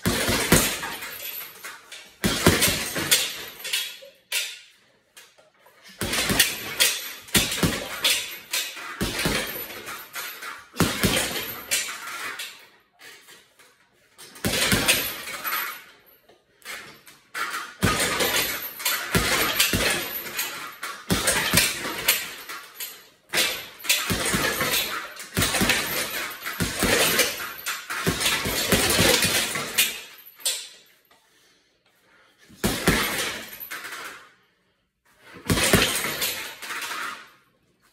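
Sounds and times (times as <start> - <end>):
gloves punching heavy bag: 0.0 - 1.2, 2.2 - 3.6, 5.9 - 10.0, 10.7 - 11.9, 14.4 - 15.4, 17.8 - 22.4, 23.3 - 30.0, 32.5 - 33.6, 35.4 - 36.4.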